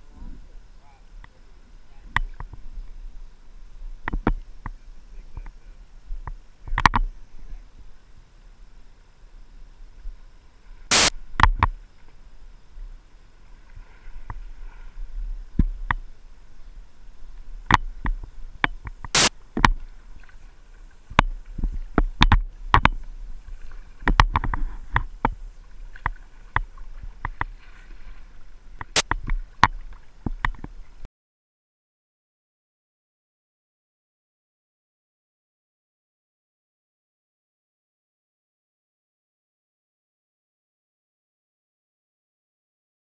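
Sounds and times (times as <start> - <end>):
paddle splashing water: 10.0 - 31.1.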